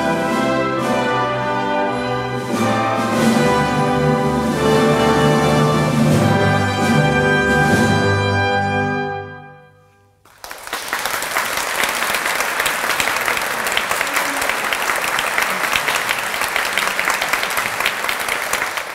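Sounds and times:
audience applause: 10.3s - 18.9s.

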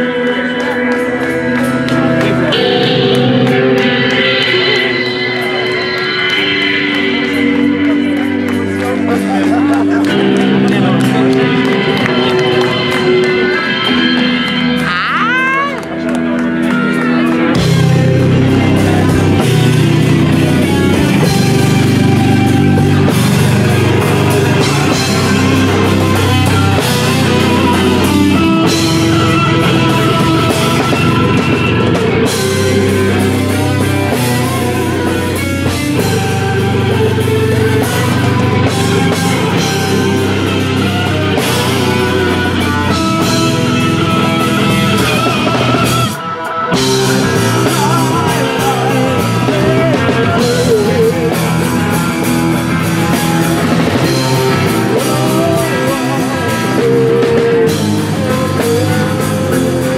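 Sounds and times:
live rock band playing: 0.0s - 59.9s.

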